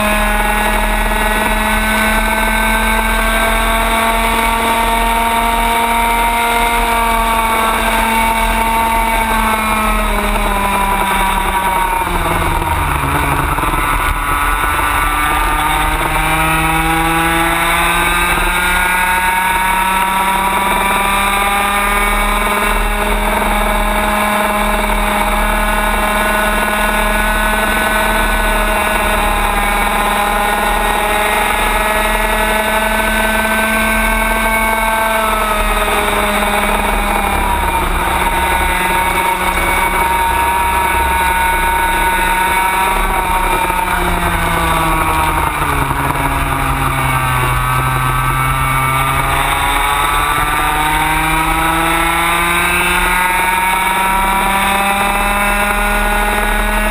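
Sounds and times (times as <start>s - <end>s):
kart engine running at speed: 0.0s - 56.9s
low rumble: 10.5s - 17.8s, 40.4s - 52.2s.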